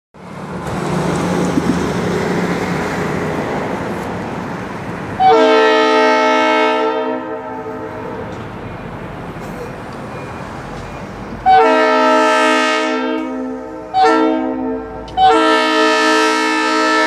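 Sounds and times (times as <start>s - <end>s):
diesel locomotive rumbling: 0.2s - 17.0s
locomotive air horn blast: 5.2s - 8.3s, 11.4s - 17.0s.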